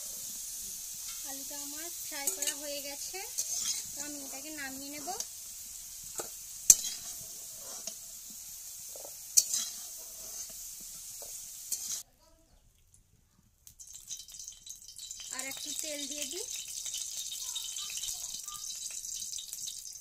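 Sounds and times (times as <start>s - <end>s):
hot oil sizzling: 0.0s - 12.1s, 12.7s - 20.0s
metal spatula clanking on pan: 2.2s - 5.3s, 6.2s - 8.0s, 8.9s - 10.6s.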